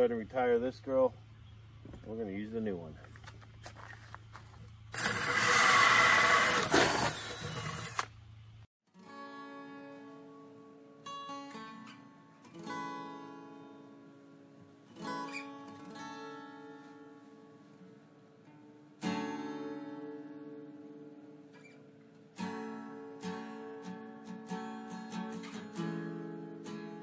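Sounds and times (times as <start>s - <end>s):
cordless drill grinding: 4.9s - 8.1s
plucked acoustic guitar music: 8.9s - 27.0s.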